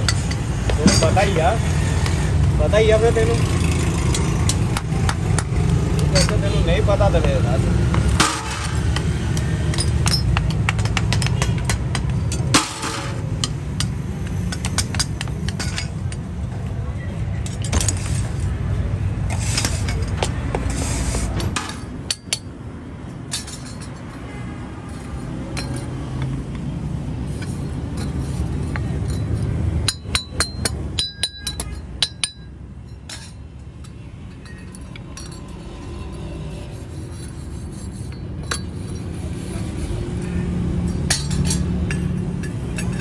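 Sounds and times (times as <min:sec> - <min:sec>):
metal scraping on gravel: 0:07.8 - 0:10.0, 0:12.4 - 0:13.4, 0:17.6 - 0:18.5, 0:19.3 - 0:22.1, 0:35.2 - 0:40.0
metallic clinks of tools on metal: 0:27.4 - 0:36.4.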